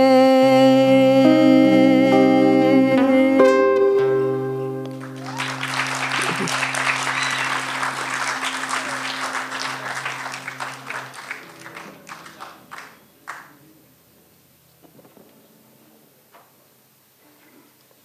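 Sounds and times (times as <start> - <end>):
audience applauding: 4.9 - 13.6.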